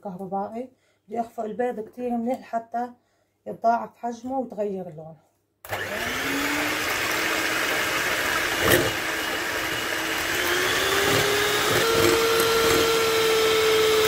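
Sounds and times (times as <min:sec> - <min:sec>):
electric hand mixer whining: 0:05.7 - 0:14.0.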